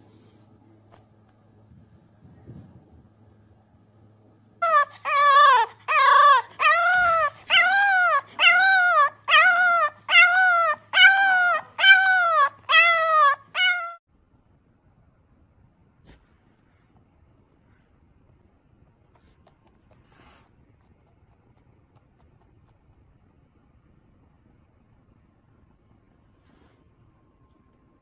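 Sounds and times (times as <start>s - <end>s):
puppy howling: 4.6s - 14.0s.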